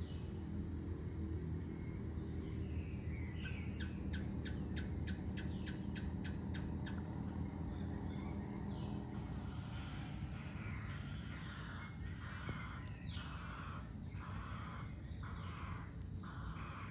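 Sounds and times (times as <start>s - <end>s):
low background rumble: 0.0s - 16.9s.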